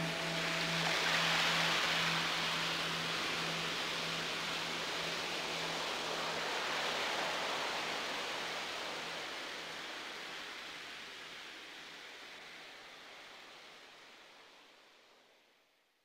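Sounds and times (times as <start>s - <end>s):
steady hiss-like noise: 0.0s - 16.0s.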